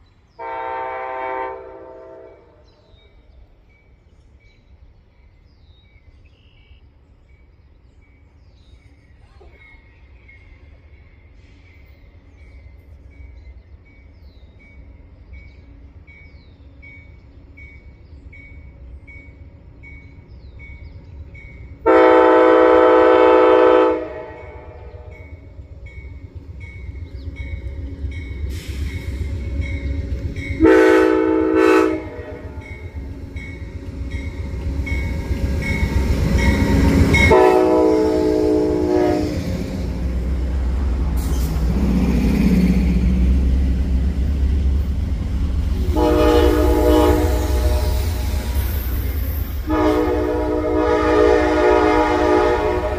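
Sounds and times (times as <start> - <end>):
locomotive engines and wheels rumbling: 0.0 - 52.9
locomotive horn blasts: 0.4 - 2.6, 21.8 - 25.3, 30.6 - 32.8, 36.1 - 39.7, 45.8 - 48.5, 49.6 - 52.9.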